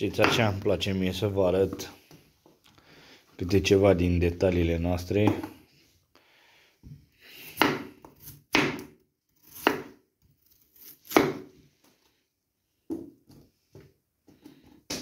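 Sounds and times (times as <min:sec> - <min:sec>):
knife slicing potato on board: 0:07.4 - 0:11.6.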